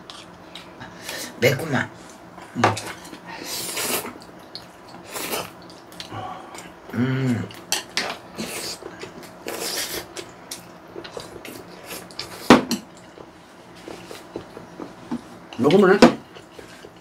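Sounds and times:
person humming: 0:06.1 - 0:07.6.

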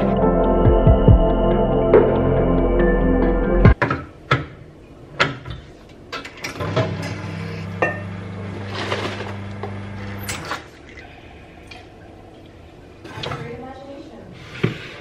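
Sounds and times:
espresso machine hum: 0:07.1 - 0:10.3.

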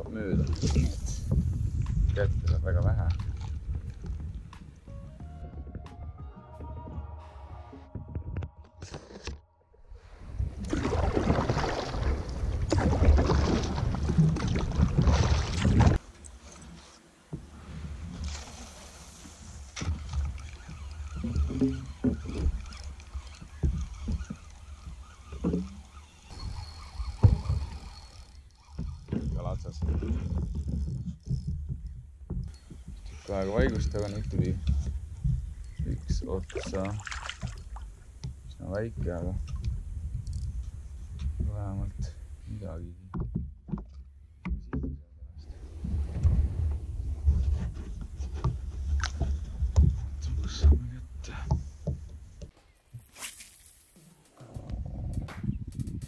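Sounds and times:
wind rumbling on microphone: 0:00.0 - 0:05.9, 0:06.8 - 0:16.1, 0:19.2 - 0:53.0, 0:54.4 - 0:56.0
water slapping kayak hull: 0:10.2 - 0:16.0, 0:17.3 - 0:40.2
low pitched calls: 0:20.4 - 0:29.1.

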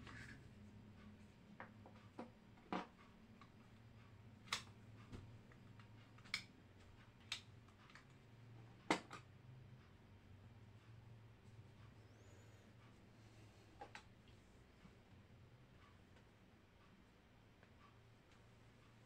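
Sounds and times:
low steady hum: 0:00.0 - 0:19.0
plastic clicks and taps: 0:08.8 - 0:09.3.

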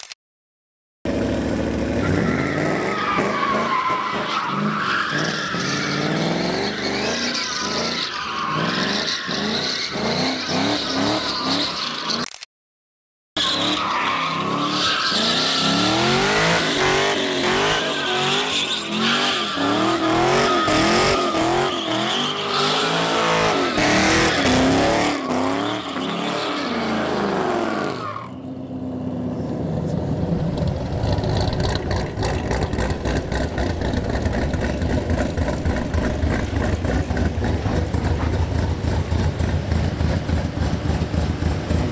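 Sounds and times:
tyres squealing: 0:13.4 - 0:28.4
car engine revving: 0:13.6 - 0:28.1, 0:29.9 - 0:41.9.

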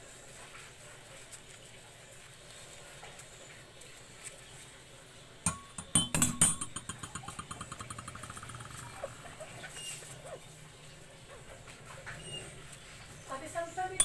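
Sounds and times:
cutlery clinking against dishes: 0:05.5 - 0:08.8.

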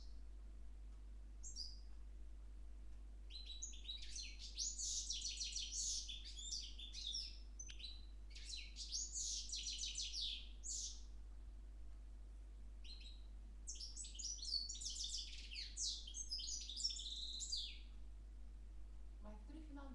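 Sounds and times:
songbirds singing high notes: 0:01.4 - 0:01.9, 0:03.2 - 0:11.1, 0:12.8 - 0:18.0.

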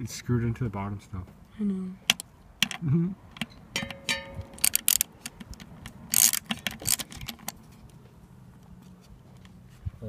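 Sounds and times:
ratchet clicking: 0:03.4 - 0:07.6.

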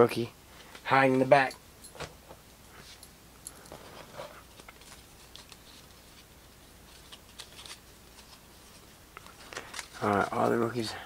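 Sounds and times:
trading cards being flipped: 0:03.7 - 0:10.7.

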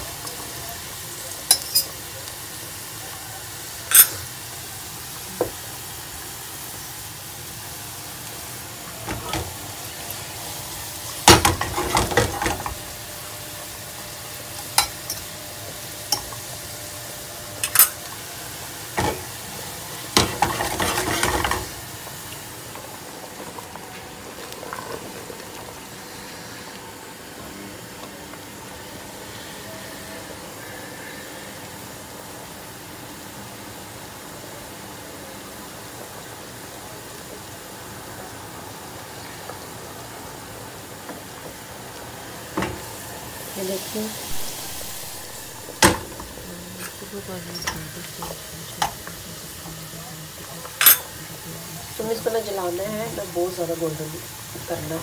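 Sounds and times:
onions sizzling in oil: 0:00.0 - 0:55.0
spatula scraping pan: 0:20.2 - 0:21.8.

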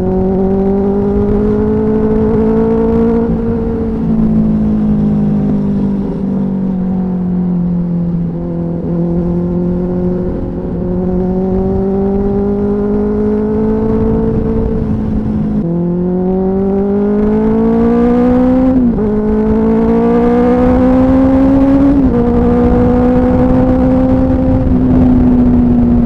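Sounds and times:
motorcycle engine accelerating: 0:00.0 - 0:26.0
wind and road noise: 0:00.0 - 0:26.0.

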